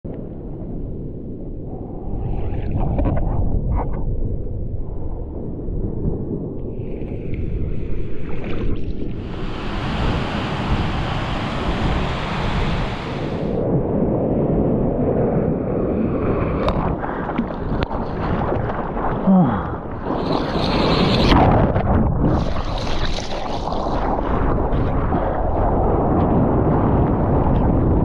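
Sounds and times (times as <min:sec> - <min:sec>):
wind buffeting microphone: 0:00.4 - 0:28.0
rush of water: 0:06.7 - 0:13.6, 0:16.4 - 0:25.5
ocean surf breaking: 0:09.1 - 0:13.6
crackling splashes: 0:16.3 - 0:25.8.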